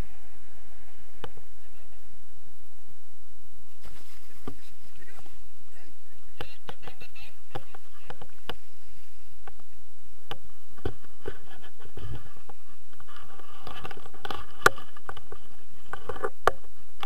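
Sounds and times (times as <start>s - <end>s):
wind buffeting microphone: 0.0s - 17.0s
clicks scrapes and rustles: 10.8s - 16.6s.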